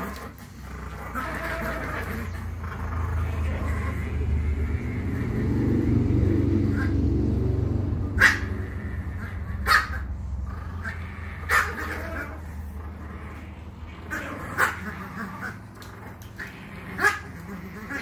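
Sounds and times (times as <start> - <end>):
dogs growling: 0.0 - 18.0
dog yipping: 8.2 - 8.6, 9.2 - 10.1, 10.8 - 12.4.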